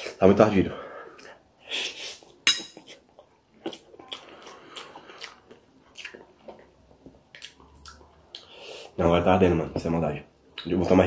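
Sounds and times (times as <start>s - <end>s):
person chewing and slurping noodles: 1.2s - 8.9s.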